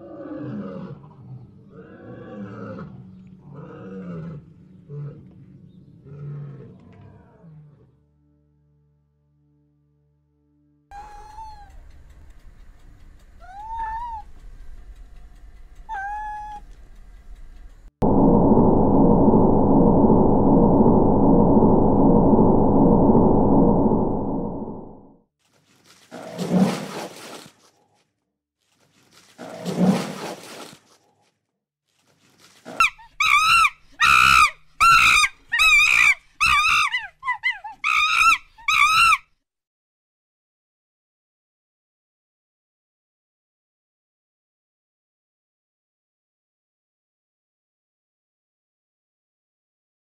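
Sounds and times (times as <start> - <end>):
low rumble: 11.0 - 25.2
cat meowing: 13.4 - 14.3, 15.9 - 16.7
high monkey calls: 15.9 - 16.6, 32.8 - 39.2.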